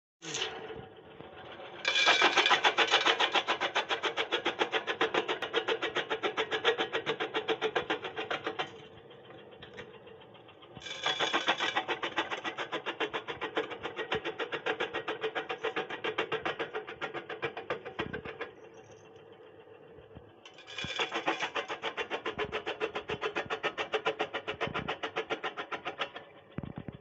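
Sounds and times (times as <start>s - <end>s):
motor hum: 7.0s - 25.4s, 26.1s - 27.0s.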